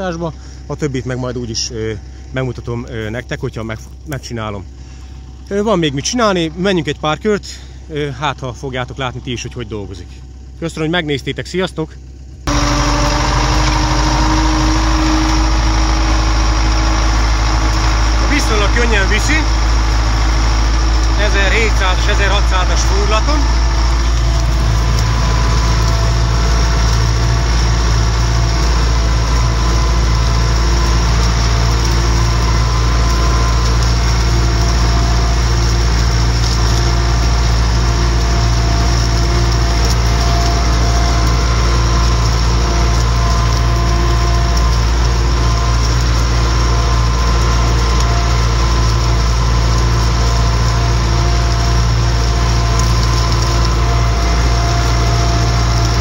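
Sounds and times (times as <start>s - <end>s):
tractor diesel engine under load: 0.0s - 56.0s.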